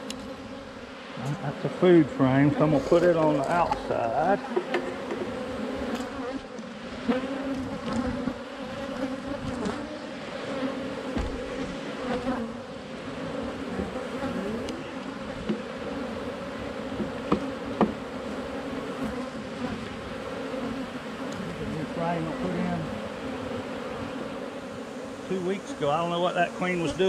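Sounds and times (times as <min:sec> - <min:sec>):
honeybees buzzing: 0:00.0 - 0:27.0
sharp knocks: 0:17.0 - 0:18.0.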